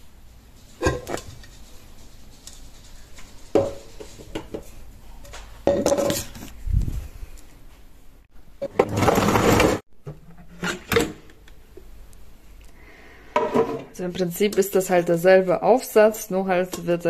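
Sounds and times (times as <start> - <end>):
clicks and knocks of kitchen parts: 0.8 - 1.5.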